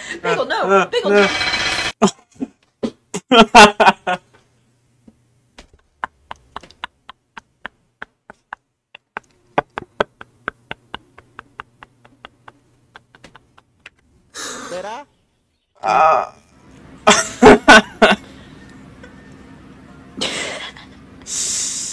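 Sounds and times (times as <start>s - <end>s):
faint steady hum: 9.0s - 21.9s.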